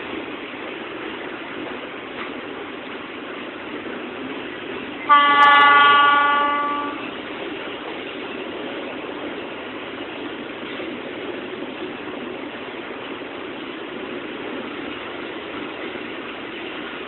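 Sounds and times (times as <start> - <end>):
locomotive horn blast: 5.1 - 7.1.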